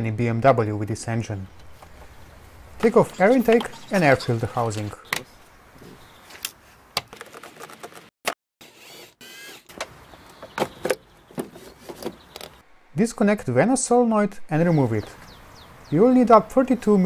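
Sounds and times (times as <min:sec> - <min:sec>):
cordless drill whirring: 0:08.6 - 0:09.7.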